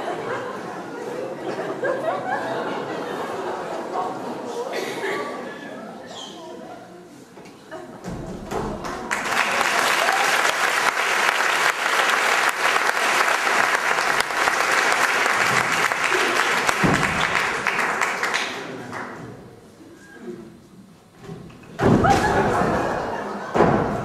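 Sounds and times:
audience applauding: 0:08.8 - 0:19.2.

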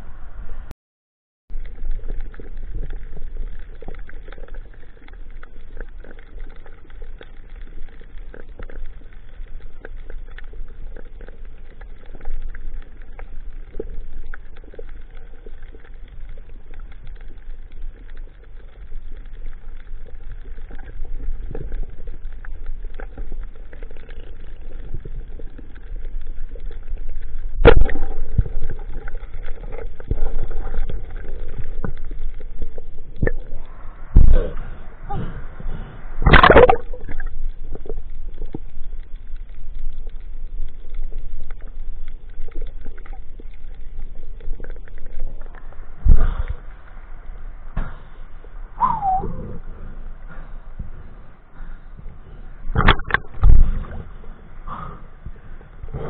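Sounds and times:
faint underwater clicks and crackle: 0:01.5 - 0:56.0
underwater rush of water: 0:01.5 - 0:56.0
splashy movement: 0:36.2 - 0:38.0.

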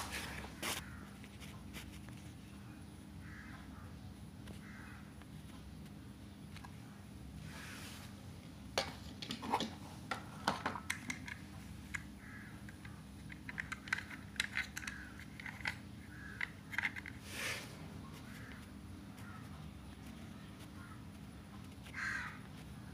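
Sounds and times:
toy train plastic clicks: 0:12.8 - 0:15.8.

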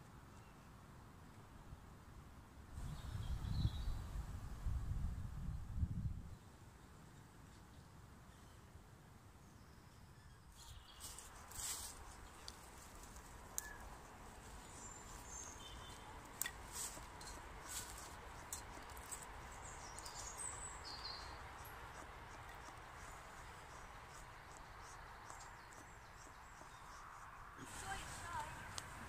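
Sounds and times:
faint bird chirps: 0:09.4 - 0:12.5, 0:13.5 - 0:16.5, 0:18.0 - 0:28.8.

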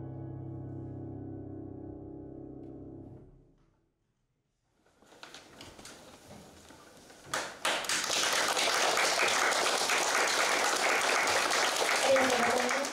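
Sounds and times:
audience applauding: 0:07.3 - 0:12.9.

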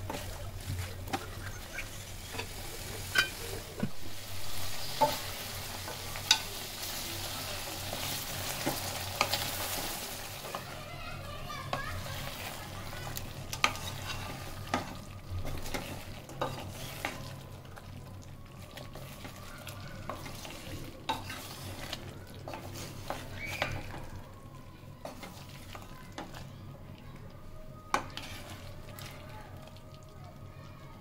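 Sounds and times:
curry sizzling in a pot: 0:00.0 - 0:31.0
spatula scraping a pot: 0:12.2 - 0:17.3, 0:20.0 - 0:24.0, 0:25.0 - 0:26.4, 0:27.9 - 0:29.2.

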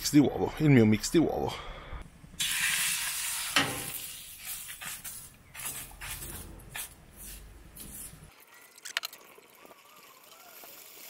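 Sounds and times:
eggs sizzling on a griddle: 0:02.4 - 0:05.8.

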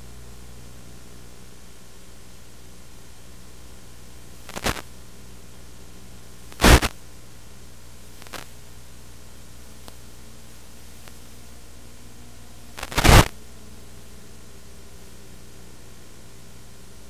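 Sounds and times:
static hiss: 0:00.0 - 0:17.0
burst of crackling: 0:04.5 - 0:04.8, 0:06.6 - 0:06.9, 0:12.8 - 0:13.3.

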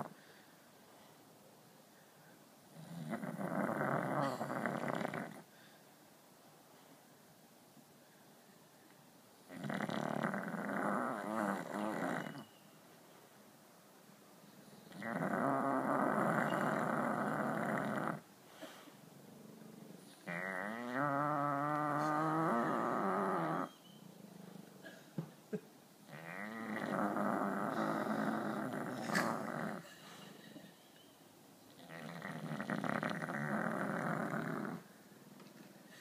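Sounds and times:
dog snoring: 0:02.7 - 0:05.5, 0:09.5 - 0:12.5, 0:14.9 - 0:18.2, 0:19.4 - 0:23.8, 0:26.1 - 0:29.8, 0:31.7 - 0:34.9.

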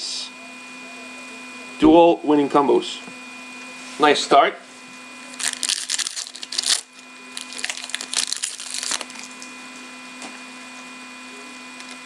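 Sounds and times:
foil wrapper tearing and crinkling: 0:05.3 - 0:09.5.

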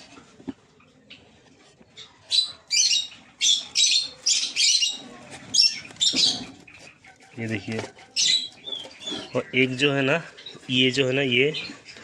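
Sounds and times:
cockatiels giving harsh calls: 0:02.3 - 0:09.6.

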